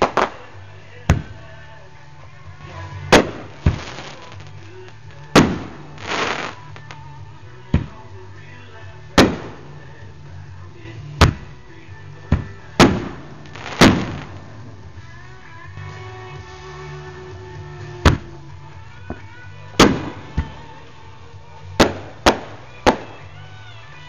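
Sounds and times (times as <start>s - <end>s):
fireworks bangs: 0.0s - 1.6s, 2.6s - 7.1s, 7.7s - 8.1s, 9.1s - 10.0s, 11.2s - 11.6s, 12.3s - 14.9s, 17.9s - 18.4s, 19.1s - 21.0s, 21.7s - 23.4s
firework hiss: 2.7s - 8.2s, 9.2s - 15.2s.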